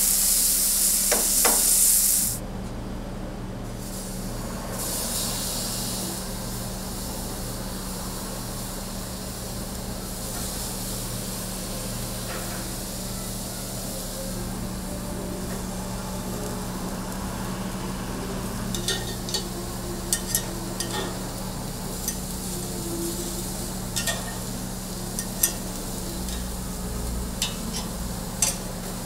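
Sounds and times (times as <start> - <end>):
faint hiss: 0.0 - 2.4
steak sizzling on a grill: 0.0 - 2.4, 3.8 - 29.0
steady low hum: 14.3 - 29.0.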